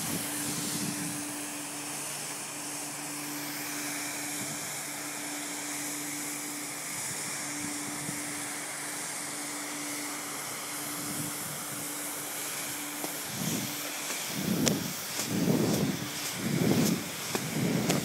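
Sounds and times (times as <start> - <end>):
hiss of spray: 0.0 - 18.0
mechanical hum: 0.0 - 18.0.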